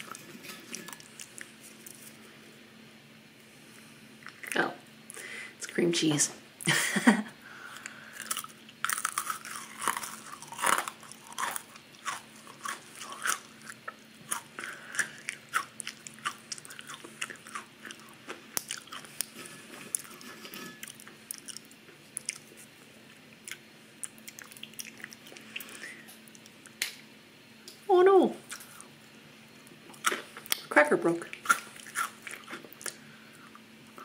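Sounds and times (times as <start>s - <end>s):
crackers crunching: 0.0s - 2.4s, 7.7s - 27.0s, 29.6s - 33.6s
chewing with small clicks: 7.8s - 19.3s, 20.8s - 22.6s, 23.4s - 26.9s, 31.3s - 33.6s.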